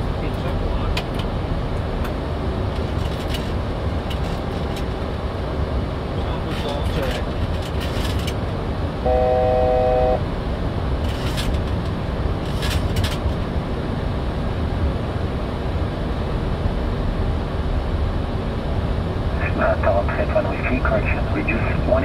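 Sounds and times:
electronic alert tone: 0:09.1 - 0:10.2.

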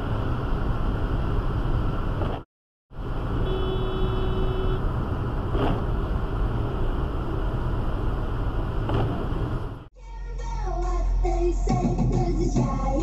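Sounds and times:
road and wind noise in car: 0:00.0 - 0:09.9.

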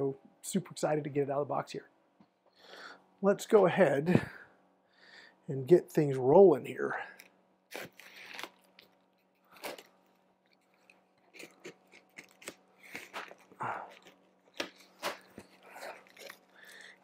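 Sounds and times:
packing tape tearing: 0:07.7 - 0:13.7, 0:14.4 - 0:17.0.

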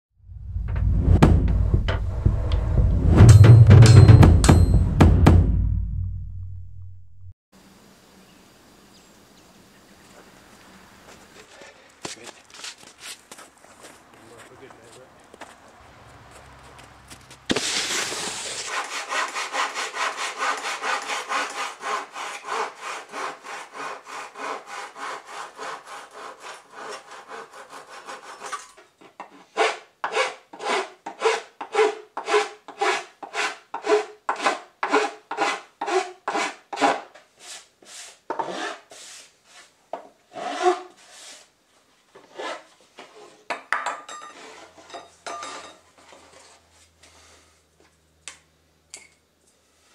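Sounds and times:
hand file rasping on board: 0:18.7 - 0:39.7, 0:40.3 - 0:41.5.

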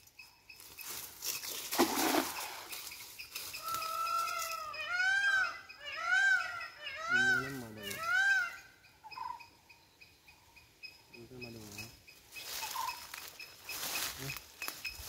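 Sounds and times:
bird calling: 0:01.3 - 0:15.0
net splashing into water: 0:01.7 - 0:02.7.

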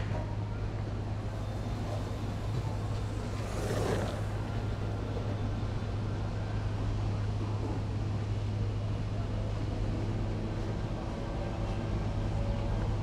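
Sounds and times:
street traffic hum: 0:00.0 - 0:08.7
vehicle passing: 0:01.2 - 0:05.9.

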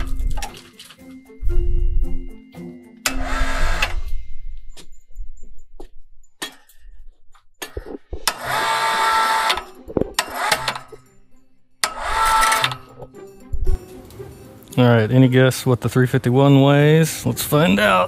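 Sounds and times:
electric hoist motor running: 0:03.0 - 0:04.0, 0:08.3 - 0:11.0, 0:11.8 - 0:12.9.

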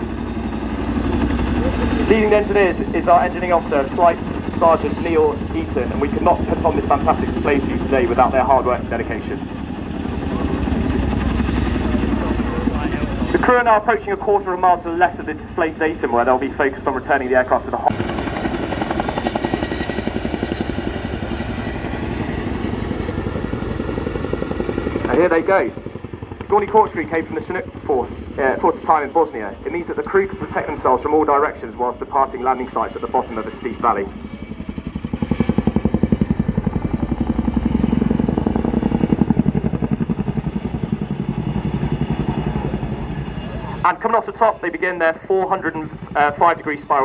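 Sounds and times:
helicopter rotors thudding: 0:00.0 - 0:47.0.

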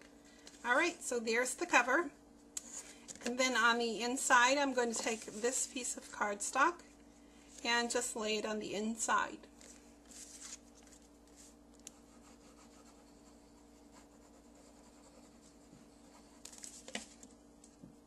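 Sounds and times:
faint steady hum: 0:00.0 - 0:18.0
rubbing on paper: 0:10.1 - 0:17.0.

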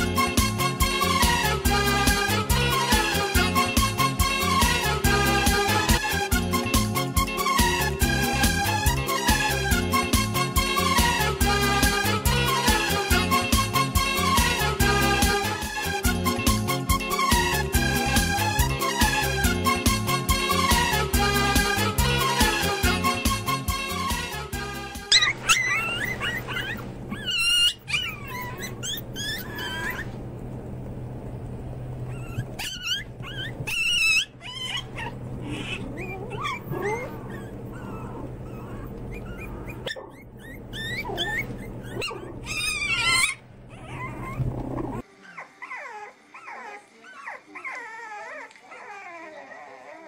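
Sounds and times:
puppies whining: 0:00.0 - 0:19.6, 0:25.0 - 0:30.8, 0:31.6 - 0:50.0
puppies yipping and whimpering: 0:25.0 - 0:30.3, 0:31.9 - 0:50.0
steady low hum: 0:25.4 - 0:45.0.

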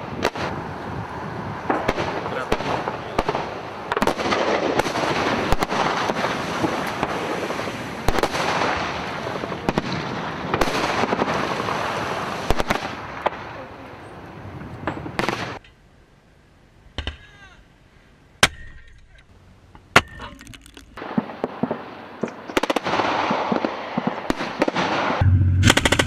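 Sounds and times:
gunshots: 0:22.5 - 0:26.0
rolling rumble of gunfire: 0:22.5 - 0:26.0
explosions: 0:22.6 - 0:26.0.

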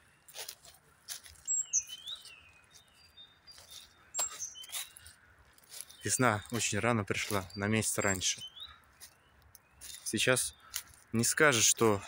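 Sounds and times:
small songbirds chirping: 0:00.0 - 0:12.0
footsteps rustling through dry leaves: 0:00.1 - 0:12.0.

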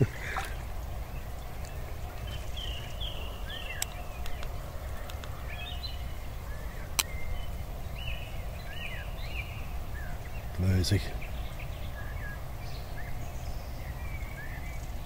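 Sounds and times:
short chirping bird calls: 0:00.0 - 0:15.0
faint clicks: 0:00.4 - 0:02.3, 0:03.7 - 0:05.6.

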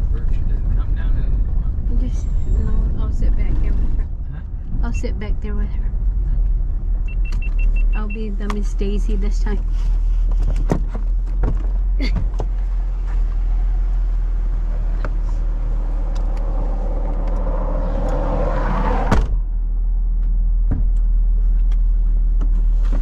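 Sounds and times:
car engine and road hum: 0:00.0 - 0:23.0
rushing noise: 0:14.8 - 0:19.2.

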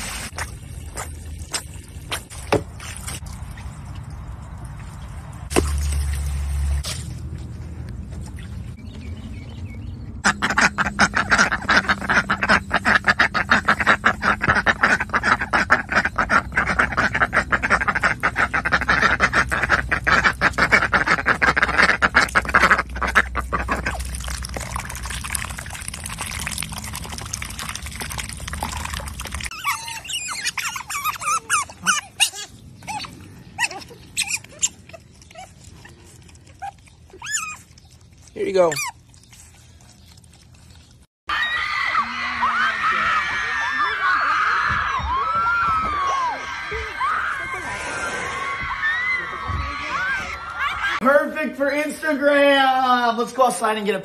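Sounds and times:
duck quacking: 0:10.2 - 0:24.0.

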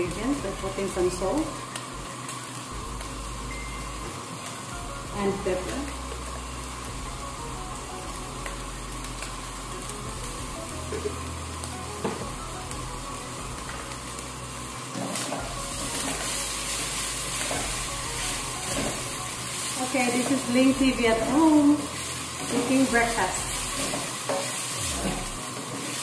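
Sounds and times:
meat sizzling in a frying pan: 0:00.0 - 0:26.0
spatula stirring meat in pan: 0:14.9 - 0:20.6, 0:21.2 - 0:24.8.

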